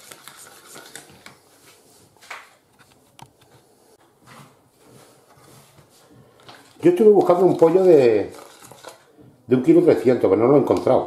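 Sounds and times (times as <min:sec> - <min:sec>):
spoon stirring in plastic bowl: 0:04.9 - 0:09.1.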